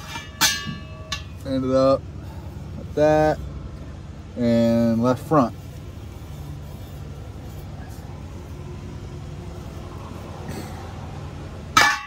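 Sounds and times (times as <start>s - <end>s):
low mechanical hum: 0.0s - 12.0s
faint rustle: 5.5s - 10.8s.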